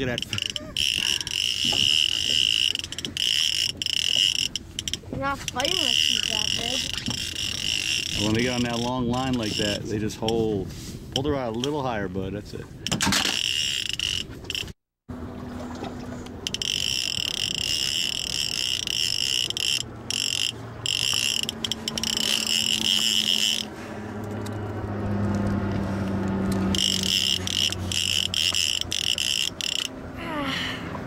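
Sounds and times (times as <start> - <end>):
fishing reel whirring: 0.0 - 10.4, 13.1 - 14.8, 16.1 - 24.6, 26.0 - 30.2.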